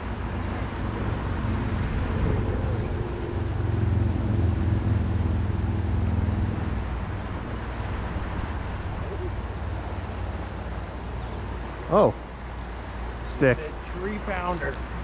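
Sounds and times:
low rumble: 1.0 - 9.0.

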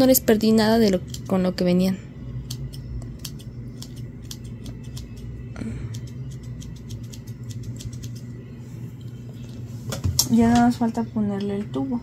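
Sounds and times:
low hum: 0.0 - 12.0
scissors snipping hair: 0.8 - 1.5, 2.4 - 8.3.

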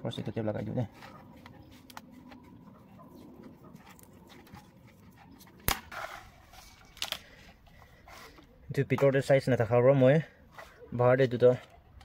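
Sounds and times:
tape wrapping handling noise: 6.6 - 7.4.

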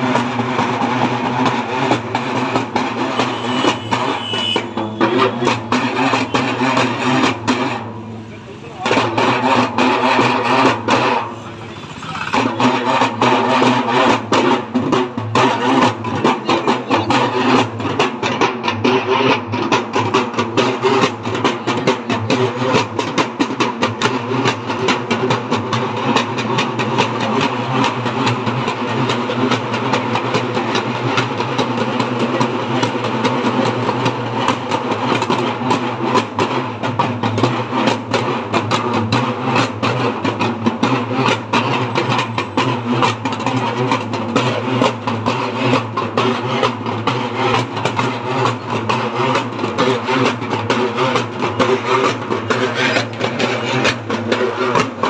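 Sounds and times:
barrel drums rolling: 8.8 - 55.0.

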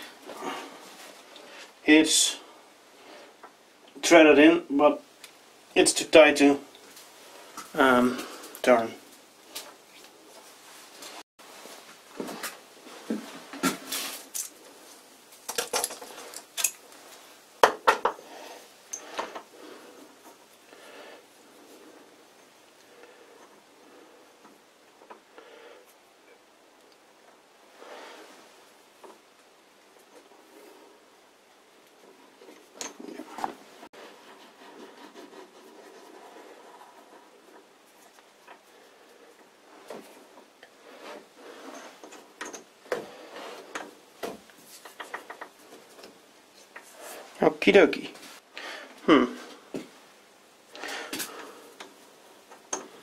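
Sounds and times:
light metallic clinks and knocks: 15.4 - 17.0, 32.5 - 33.5, 41.6 - 43.0.

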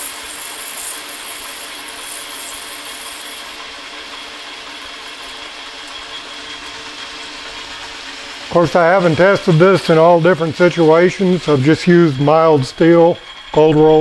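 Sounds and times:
hissing metal cutting: 0.0 - 14.0
metal lathe humming: 0.0 - 14.0.

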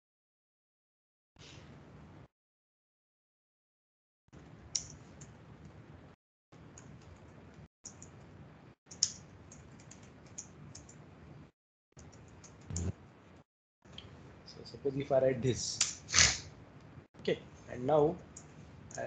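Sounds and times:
laptop keyboard typing: 8.9 - 11.0.

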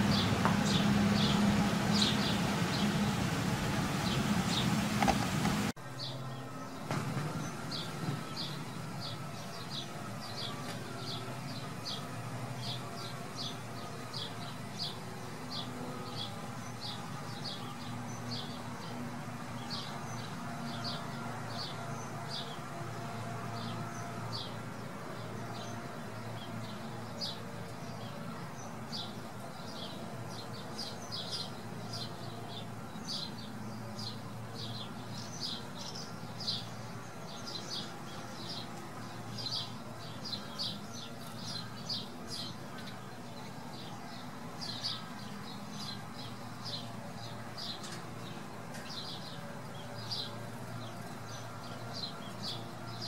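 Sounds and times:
electric blower running: 0.0 - 5.8
small birds chirping: 0.0 - 6.8, 25.4 - 53.0.

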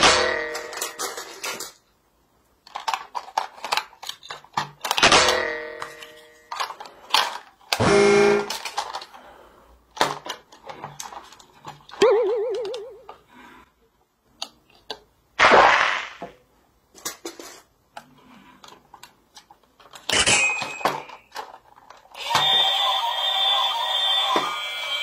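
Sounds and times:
plastic toy clicks and knocks: 2.6 - 7.8, 16.9 - 22.6.

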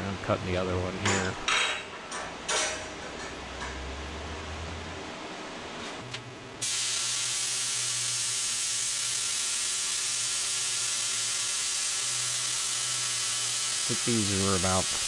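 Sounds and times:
plasma cutter hissing: 6.6 - 15.0.

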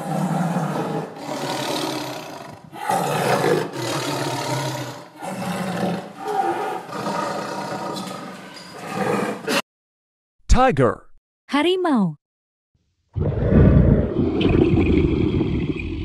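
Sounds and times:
lion roaring: 0.0 - 9.6, 13.2 - 14.7.

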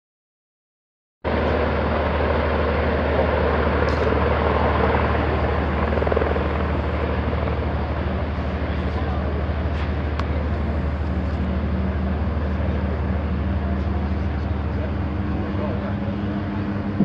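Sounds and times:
ship engines droning: 1.3 - 17.0.

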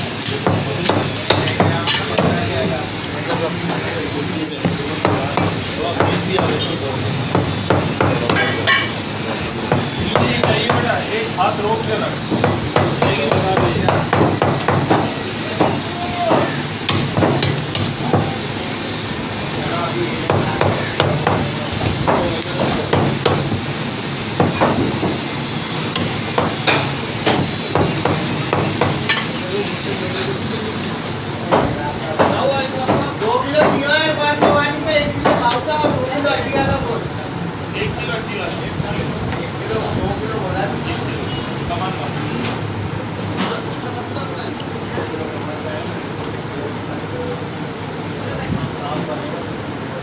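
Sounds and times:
cleaver chopping meat on wood: 12.4 - 18.4.

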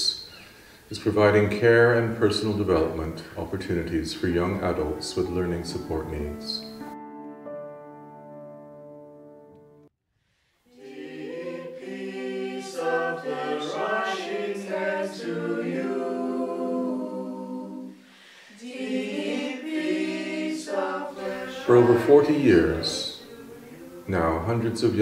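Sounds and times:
background music chord: 3.5 - 9.9, 19.5 - 25.0
group singing unaccompanied: 10.7 - 25.0.

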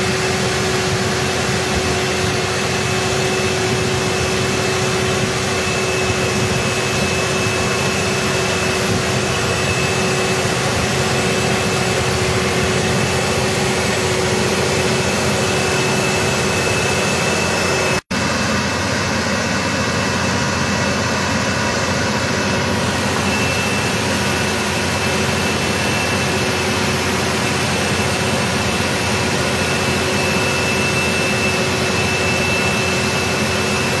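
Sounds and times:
tractor engine droning: 0.0 - 34.0.

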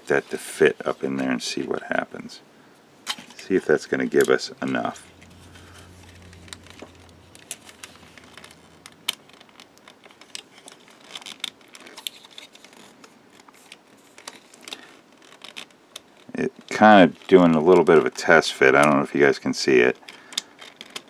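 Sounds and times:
faint low hum: 0.0 - 10.2
plastic model parts clicking: 6.2 - 18.1, 19.8 - 21.0.

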